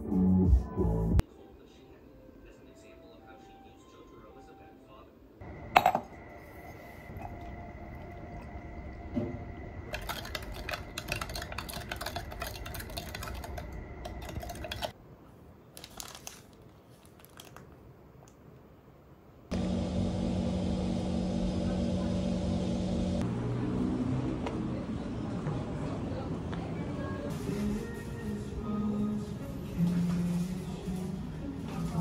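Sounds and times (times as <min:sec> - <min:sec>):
low hum: 0:05.4 - 0:14.9, 0:19.5 - 0:23.6
spoon stirring in plastic jug: 0:05.8 - 0:08.5, 0:09.8 - 0:15.0.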